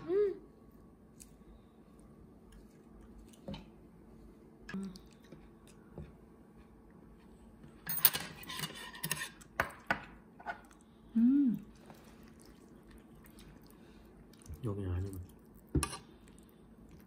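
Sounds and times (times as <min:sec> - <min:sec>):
person humming: 0:11.2 - 0:11.7.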